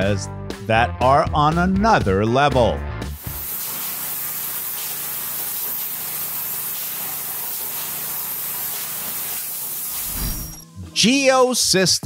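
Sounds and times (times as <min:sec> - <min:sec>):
spray foam gun hissing: 0:03.2 - 0:10.6.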